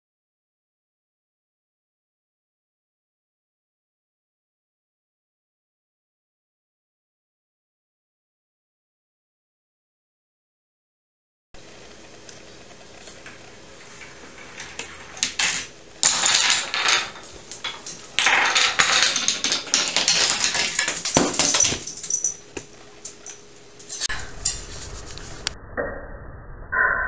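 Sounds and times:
wooden dominoes clattering on table: 13.2 - 24.6.

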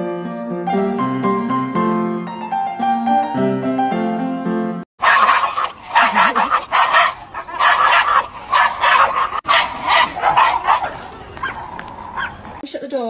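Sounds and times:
dog barking: 5.0 - 12.6.

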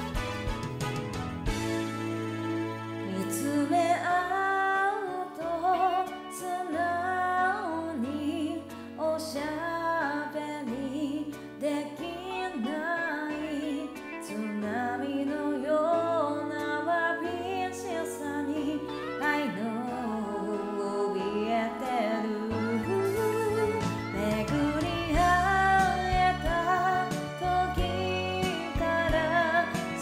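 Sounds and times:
karaoke backing track: 0.0 - 30.0
woman singing pop ballad: 3.0 - 30.0.

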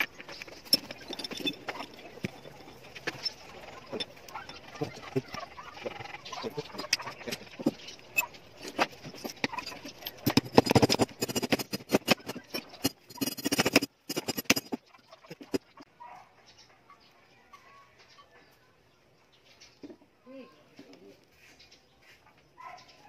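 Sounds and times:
metal gears clinking: 0.0 - 4.8, 6.8 - 15.6.

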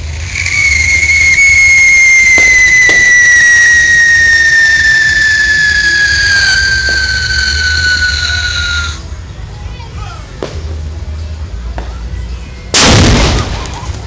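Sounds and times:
firework fountain whistling: 0.0 - 9.0
firework sparks spraying: 0.0 - 9.0.

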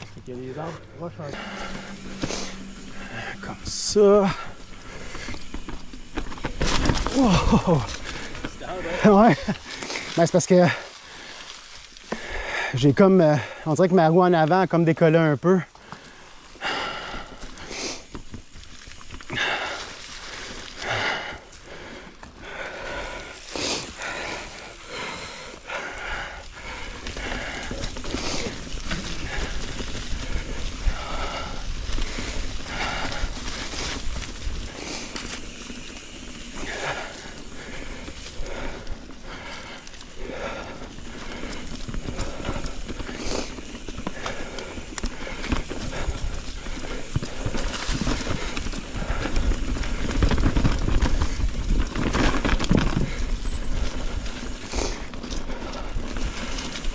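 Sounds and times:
bike tyres crackling over dry leaves: 0.0 - 56.9
bike rattles and knocks: 1.3 - 10.5, 26.0 - 56.9.

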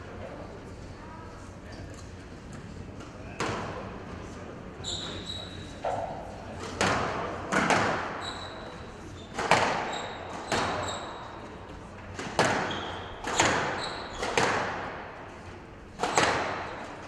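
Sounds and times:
shoe squeaks: 4.8 - 6.0, 8.1 - 11.5, 12.6 - 14.4
squash ball cracks: 12.1 - 15.2, 16.0 - 16.9.

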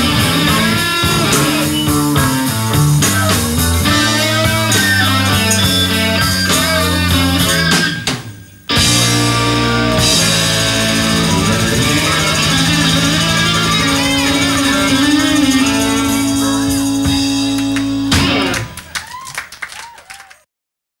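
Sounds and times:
live blues band: 0.0 - 19.0
guitar chord ringing out: 8.7 - 18.6.

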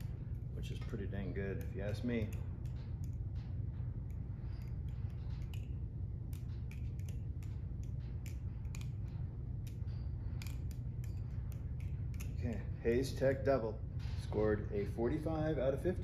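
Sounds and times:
steady low hum: 0.0 - 16.0
butterfly knife clicking: 1.6 - 3.2, 4.0 - 12.4.

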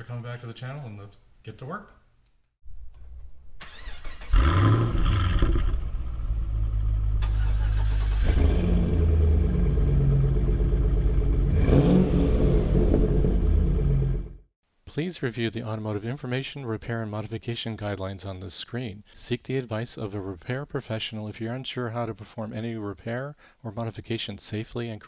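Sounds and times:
car engine starting and idling: 3.6 - 14.4.

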